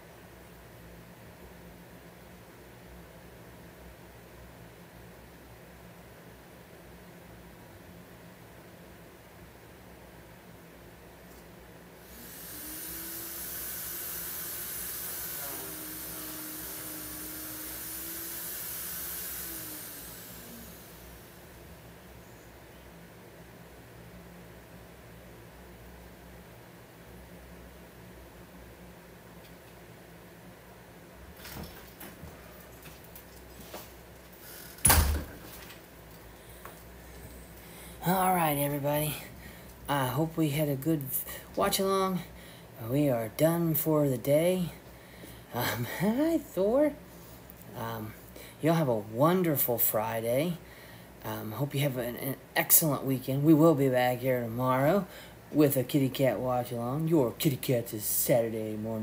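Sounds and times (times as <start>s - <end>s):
electric motor whirring: 12.0s - 21.7s
door shutting with a thud: 31.4s - 32.2s, 34.8s - 35.8s.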